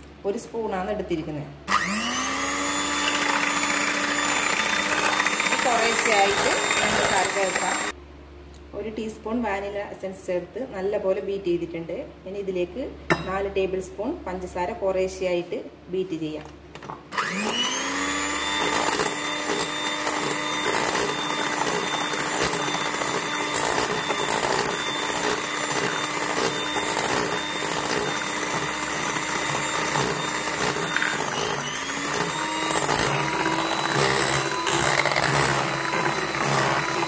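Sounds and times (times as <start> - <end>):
electric hand mixer whining: 1.7 - 8.0, 17.1 - 37.0
beaters whipping in a bowl: 18.6 - 37.0.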